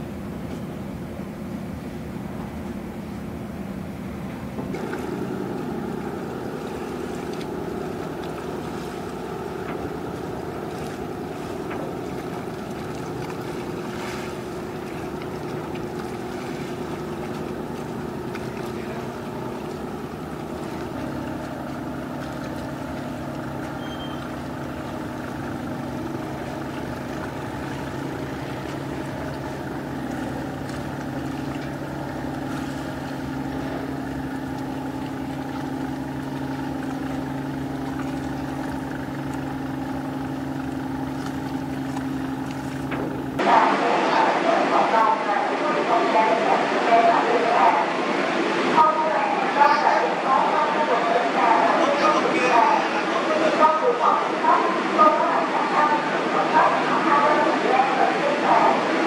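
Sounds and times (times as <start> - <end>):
diesel engine humming: 0.0 - 59.0
water washing: 3.8 - 59.0.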